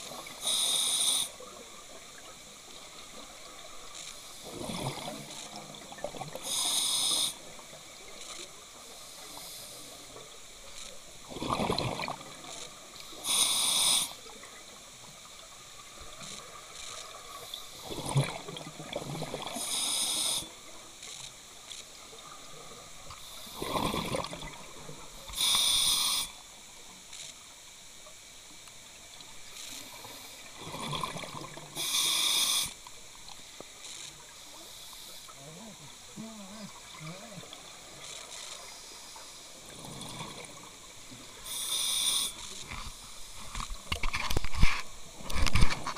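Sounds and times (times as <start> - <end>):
regulator breath hiss: 0.2 - 1.4, 6.4 - 7.5, 8.9 - 10.1, 13.1 - 14.2, 19.5 - 20.6, 25.2 - 26.4, 31.8 - 32.9, 34.6 - 35.4, 41.4 - 43.4
gurgling exhaled bubbles: 11.3 - 12.4, 17.8 - 19.6, 23.5 - 24.8, 30.6 - 31.8.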